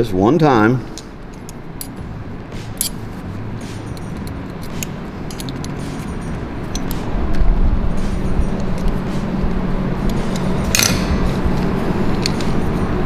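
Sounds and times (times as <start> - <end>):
low background hum: 0.0 - 13.0
light metallic clicks and clinks: 3.8 - 7.0.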